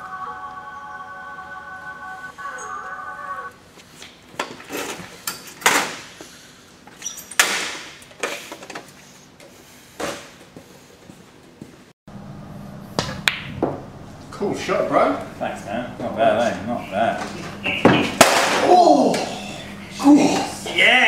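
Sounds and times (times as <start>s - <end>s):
pool cue striking ball: 12.9s - 13.9s.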